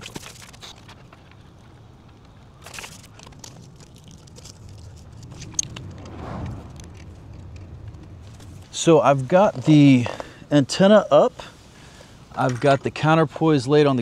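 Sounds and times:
low vehicle rumble: 1.8s - 11.0s.

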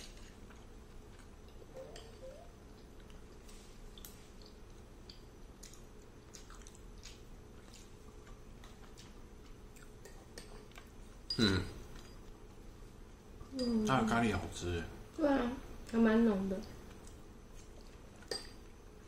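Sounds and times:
chewing: 0.0s - 1.7s, 2.7s - 12.6s, 16.6s - 19.0s.

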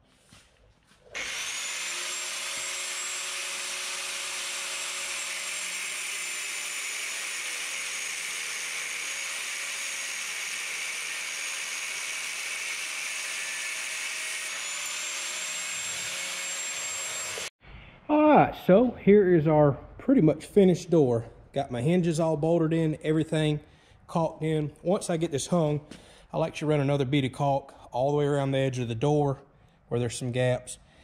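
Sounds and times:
angle grinder grinding metal: 1.1s - 17.5s.

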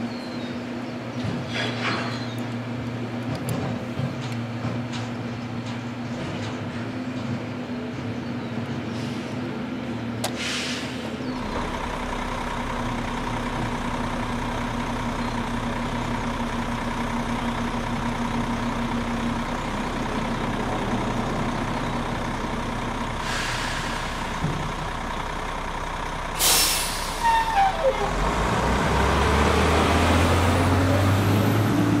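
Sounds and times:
garbage truck engine humming: 0.0s - 32.0s
short hisses: 10.3s - 11.2s, 23.2s - 24.3s, 26.4s - 27.3s.

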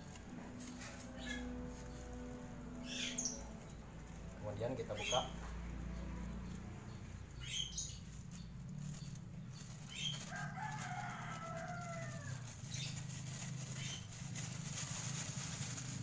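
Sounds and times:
steady low hum: 0.0s - 4.6s
plastic bag rustling: 0.0s - 16.0s
rooster crowing: 10.0s - 12.6s.

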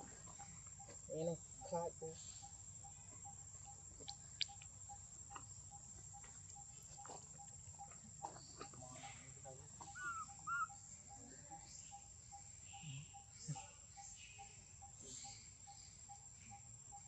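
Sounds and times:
high insect hum: 0.0s - 17.0s
faint regular ticking call: 2.4s - 16.9s
baby monkey squeaking: 9.8s - 10.8s.

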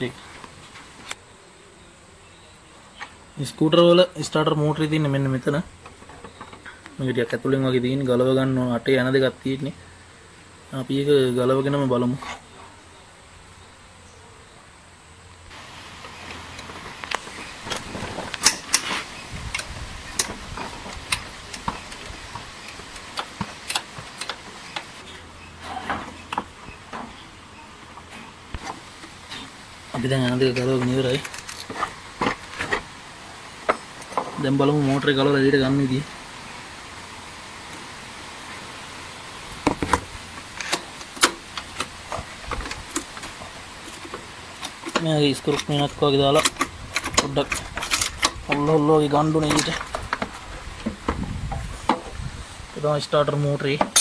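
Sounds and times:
steady background hiss: 0.0s - 54.0s
hand tools clinking on metal: 30.5s - 32.4s, 53.8s - 54.0s.

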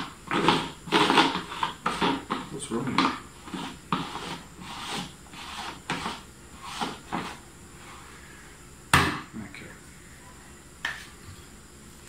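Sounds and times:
rustling and scraping: 0.0s - 8.2s.

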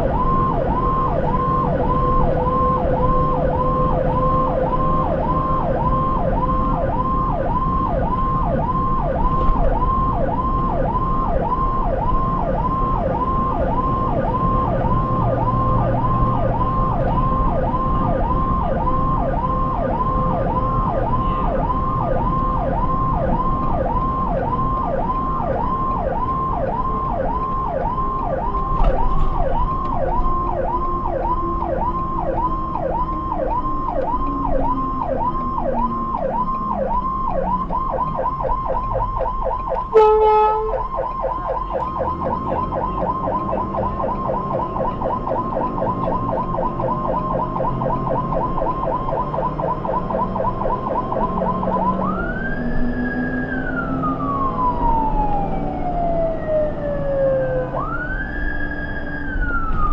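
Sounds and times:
ambulance siren yelping and wailing: 0.0s - 59.9s
short horn blast: 39.9s - 40.8s.

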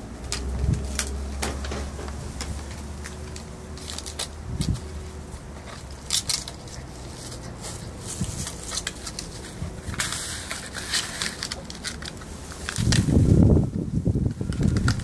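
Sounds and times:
puppy chewing crunching: 2.4s - 9.9s.

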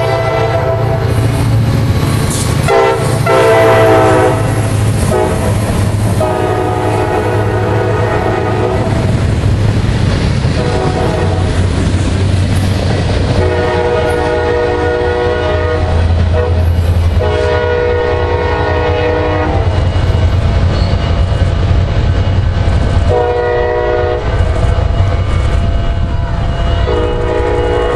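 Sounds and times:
locomotive air horn blasts: 0.0s - 1.1s, 2.4s - 9.1s, 10.6s - 11.6s, 13.4s - 19.8s, 23.1s - 24.7s, 26.0s - 27.9s
train wheels rumbling on rail: 0.0s - 27.9s.

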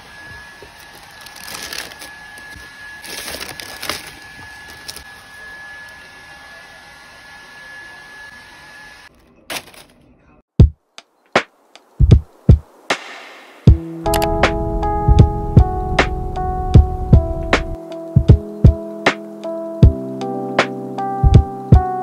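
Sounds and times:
tissue paper rustling: 0.7s - 5.1s.

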